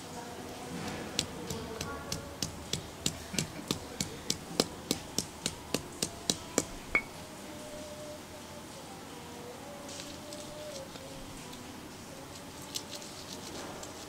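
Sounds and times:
stone pestle tapping in mortar: 0.9s - 7.1s.

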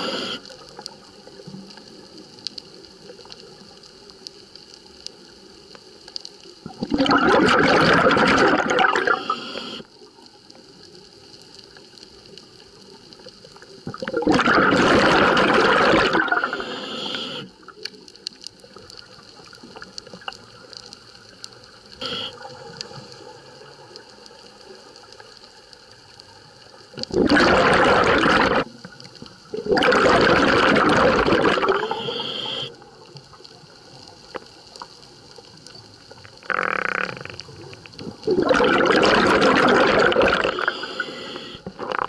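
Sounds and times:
soft steady hiss: 0.0s - 42.0s
regulator exhaust bubbling underwater: 6.7s - 9.3s, 13.9s - 16.6s, 27.1s - 28.7s, 29.5s - 32.2s, 38.3s - 40.8s.

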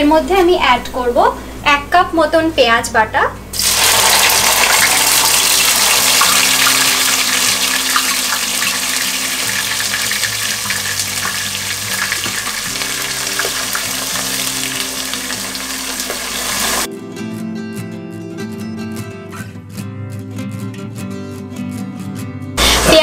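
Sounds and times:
onion paste sizzling in oil: 3.6s - 16.9s.

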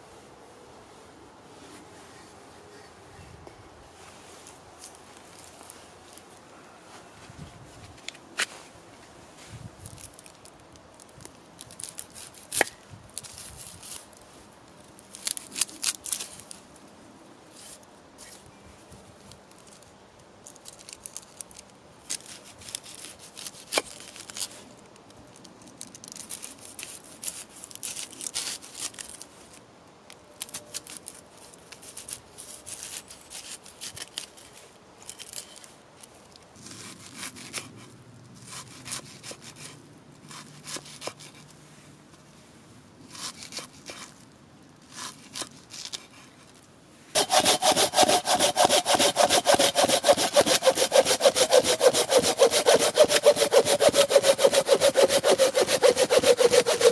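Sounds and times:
knife cutting onion: 47.2s - 56.9s.

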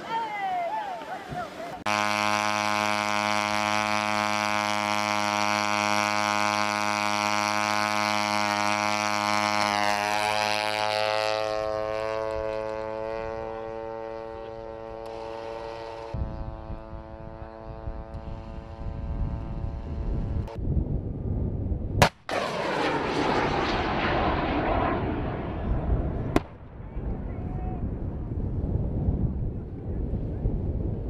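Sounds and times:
propeller engine buzzing: 1.8s - 20.6s, 22.1s - 26.8s
wind rumble on microphone: 10.2s - 31.0s.

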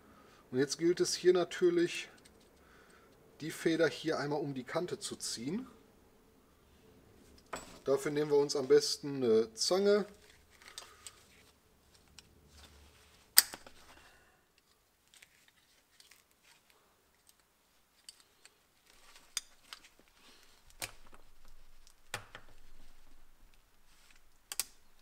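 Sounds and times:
metal clicks and clacks of springs: 24.5s - 24.8s.

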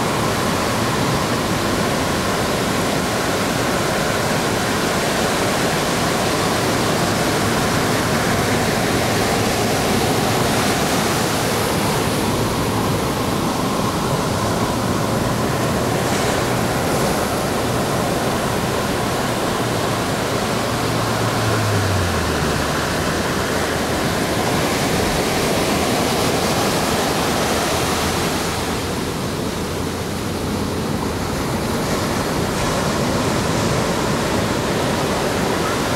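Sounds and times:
surf washing up a beach: 0.0s - 35.9s.

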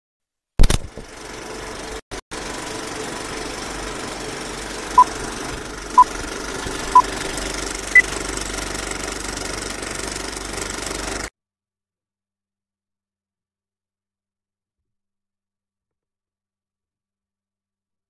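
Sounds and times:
film projector whirring: 0.6s - 11.3s.

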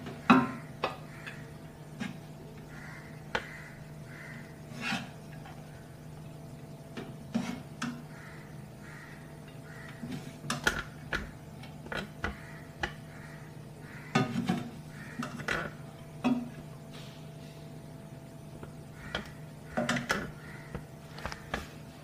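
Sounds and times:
spatula scraping a frying pan: 4.6s - 5.3s, 7.3s - 8.0s.

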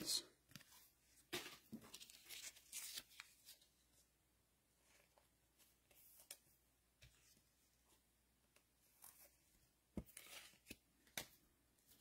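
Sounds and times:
trading cards rustling: 1.4s - 3.7s.

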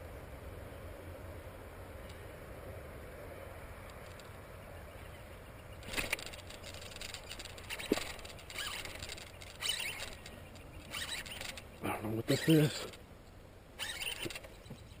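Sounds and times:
low steady hum: 0.0s - 15.0s
fishing gear crackling and rustling: 5.8s - 13.1s, 13.8s - 14.9s.

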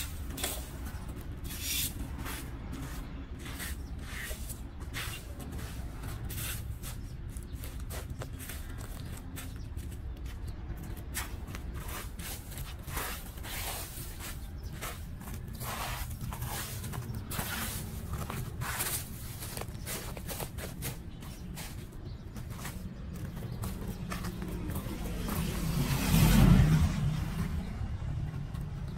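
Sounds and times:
rake scraping leaves on concrete: 0.0s - 8.7s, 11.1s - 22.8s
low rumble: 23.6s - 28.9s.

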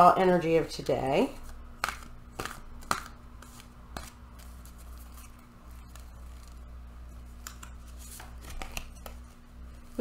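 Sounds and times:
cards snapping: 1.4s - 6.6s, 7.4s - 9.2s
cards sliding and rustling: 1.4s - 10.0s.

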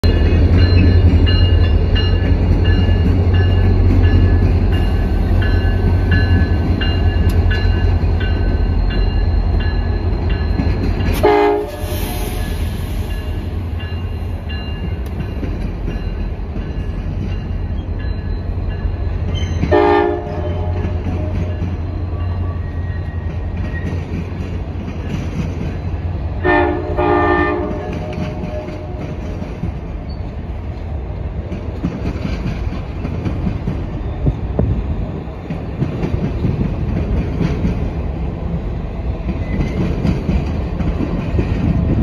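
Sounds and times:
train wheels clacking: 0.0s - 26.0s, 27.5s - 30.3s, 31.4s - 34.8s, 35.4s - 38.1s, 39.2s - 42.0s
train rumbling across bridge: 0.0s - 42.0s
train horn blast: 11.2s - 12.5s, 19.7s - 21.6s, 26.4s - 29.2s.

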